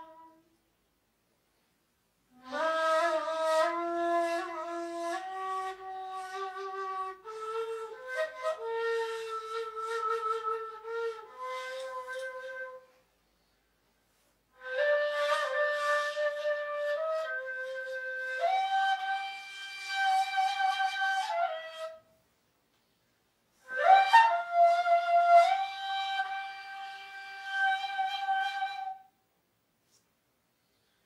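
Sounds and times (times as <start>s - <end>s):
breathy reed flute melody: 2.3s - 13.0s, 14.6s - 22.1s, 23.6s - 29.1s.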